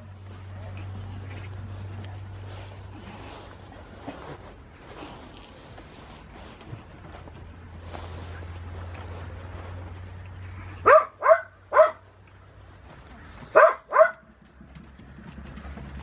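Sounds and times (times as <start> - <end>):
dog barking: 10.8 - 12.1, 13.4 - 14.2.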